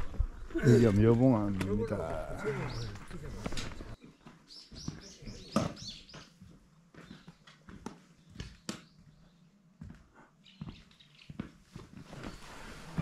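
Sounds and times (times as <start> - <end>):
footsteps on rocky trail: 0.0 - 12.4
small bird chirping: 4.0 - 6.4, 10.4 - 11.4.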